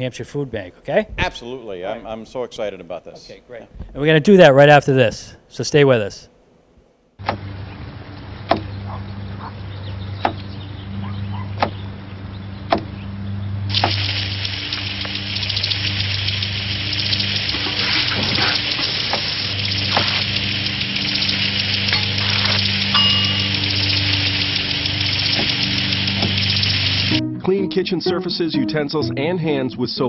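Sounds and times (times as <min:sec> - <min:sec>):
low steady hum: 0:12.0 - 0:27.2
water spraying from sink sprayer: 0:13.7 - 0:27.2.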